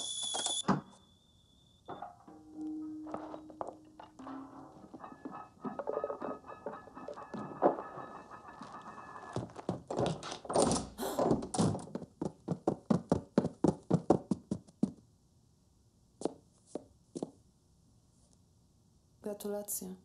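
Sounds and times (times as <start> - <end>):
footsteps down a staircase: 6.0 - 15.0.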